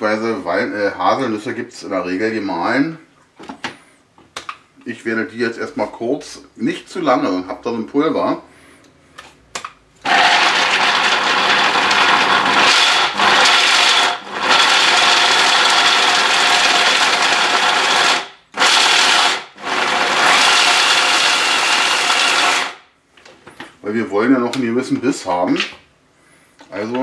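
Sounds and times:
hand blender chopping nuts: 0:10.0 - 0:22.8.

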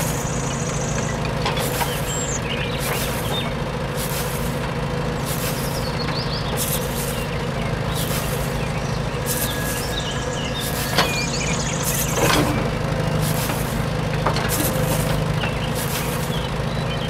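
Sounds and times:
faint high chirps: 0:00.0 - 0:03.5, 0:05.4 - 0:12.2
heavy vehicle engine rumble: 0:00.0 - 0:17.0.

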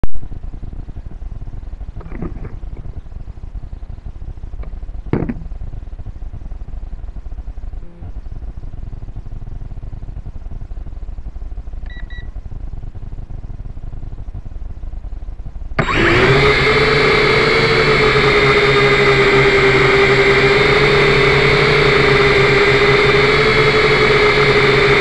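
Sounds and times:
low rumble and hiss: 0:00.1 - 0:15.8
knocks: 0:05.1 - 0:05.5.

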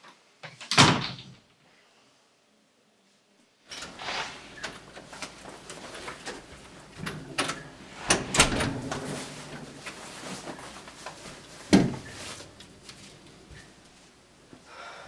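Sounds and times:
door shutting with clunk: 0:03.7 - 0:09.8, 0:11.7 - 0:12.2
jacket rustling: 0:07.6 - 0:14.4.

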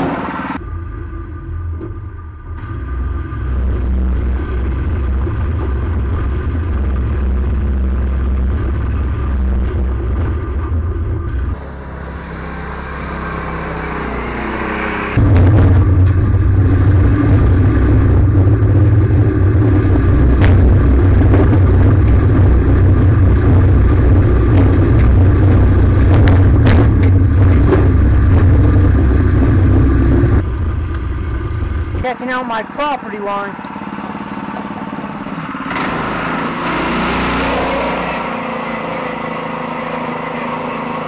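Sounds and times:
small engine revving: 0:11.5 - 0:15.4, 0:33.6 - 0:41.0.

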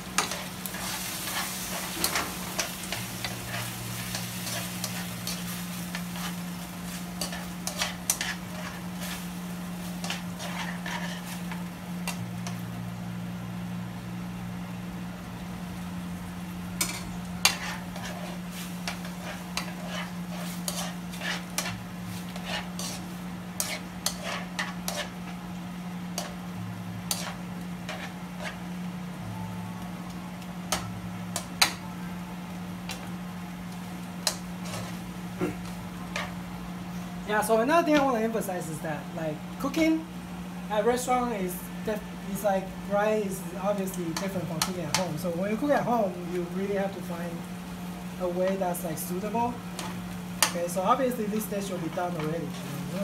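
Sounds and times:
meat sizzling in a frying pan: 0:00.0 - 0:14.4, 0:15.2 - 0:29.1, 0:32.4 - 0:53.0
steady low hum: 0:00.0 - 0:53.0
tongs clicking and scraping pan: 0:00.2 - 0:06.4, 0:07.0 - 0:09.2, 0:10.0 - 0:12.6, 0:16.8 - 0:23.0, 0:23.6 - 0:25.2, 0:27.1 - 0:28.6, 0:43.7 - 0:45.2, 0:49.7 - 0:50.8.

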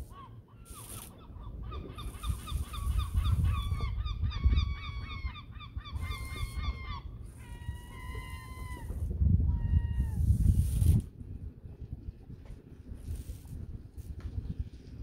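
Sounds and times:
gulls calling: 0:00.0 - 0:11.0.

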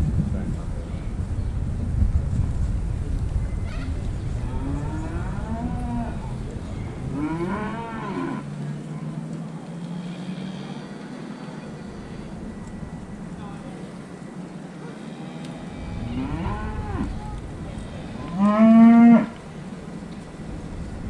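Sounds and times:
wind rumble on microphone: 0:00.0 - 0:08.5, 0:15.6 - 0:21.0
cattle mooing: 0:04.5 - 0:06.3, 0:07.1 - 0:08.5, 0:15.0 - 0:17.2, 0:17.8 - 0:19.4.

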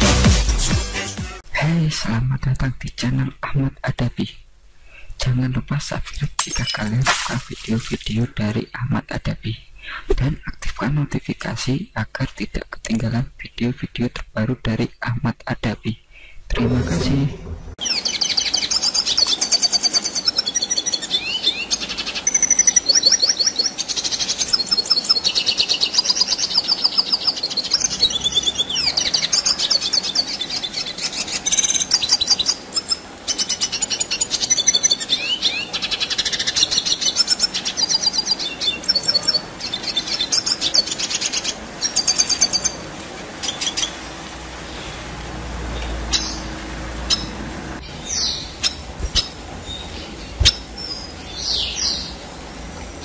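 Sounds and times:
bird singing trills and twitters: 0:17.8 - 0:42.8, 0:45.8 - 0:52.2.

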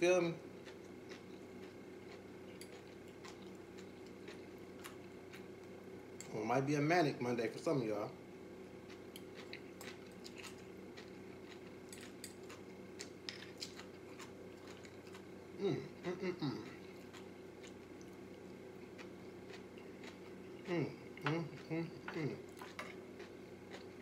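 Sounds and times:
steady low hum: 0:00.0 - 0:24.0
chewing: 0:00.6 - 0:06.3, 0:08.8 - 0:15.4, 0:16.6 - 0:24.0
short vocal sound: 0:15.6 - 0:16.8.

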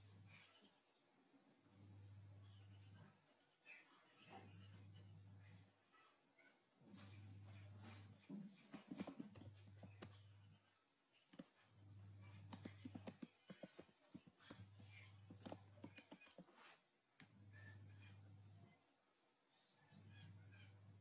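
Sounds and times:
keyboard typing: 0:08.8 - 0:10.5, 0:12.2 - 0:16.6.

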